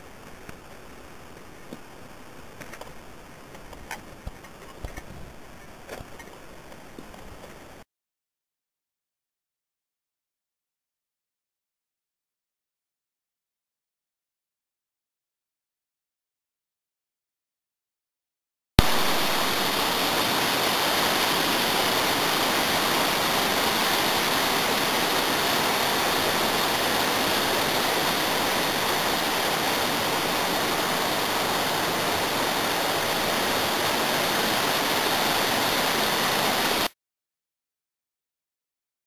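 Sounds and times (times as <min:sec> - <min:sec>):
river rapids rushing: 0:18.8 - 0:36.9.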